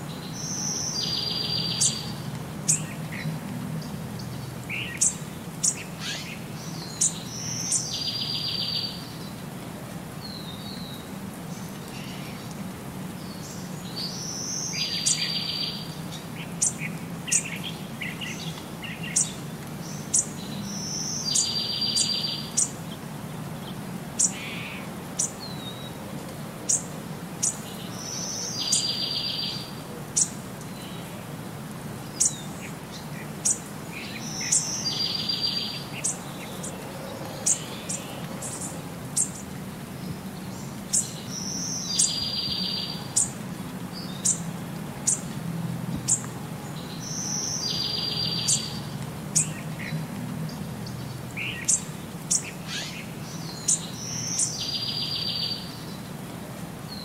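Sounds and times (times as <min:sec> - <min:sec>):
bird chirping: 0:00.1 - 0:03.3, 0:04.2 - 0:09.3, 0:13.2 - 0:22.7, 0:32.2 - 0:43.4, 0:46.1 - 0:49.9, 0:50.5 - 0:56.0.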